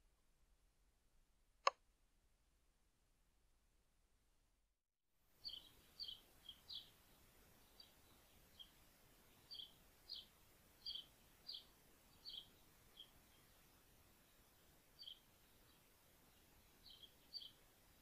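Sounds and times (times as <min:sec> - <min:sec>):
faint steady hiss: 0:05.2 - 0:18.0
small bird chirping: 0:05.4 - 0:18.0.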